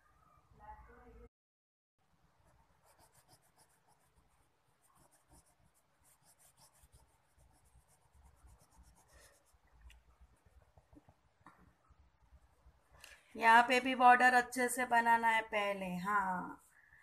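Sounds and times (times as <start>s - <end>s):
crayon scratching on paper: 2.4s - 9.7s.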